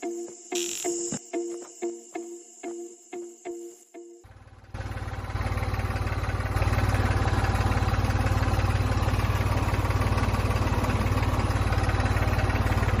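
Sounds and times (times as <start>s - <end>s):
engine chugging: 4.2s - 13.0s.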